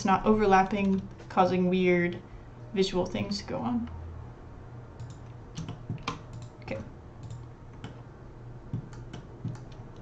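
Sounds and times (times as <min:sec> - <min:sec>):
keyboard and mouse clicking: 0:00.7 - 0:01.2, 0:05.0 - 0:06.6, 0:07.2 - 0:08.0, 0:08.7 - 0:10.0.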